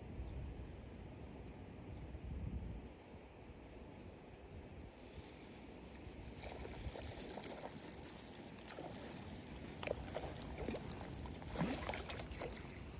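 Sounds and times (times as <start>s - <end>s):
spinning reel whirring: 5.0s - 11.5s.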